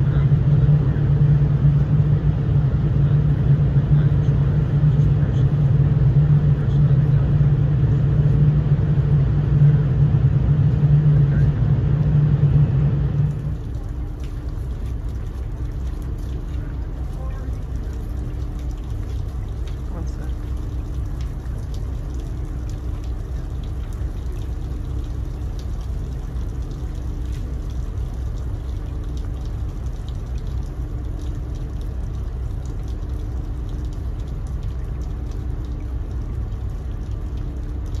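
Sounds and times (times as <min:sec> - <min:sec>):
faint hum: 0:00.0 - 0:38.0
ship machinery rumble: 0:00.0 - 0:38.0.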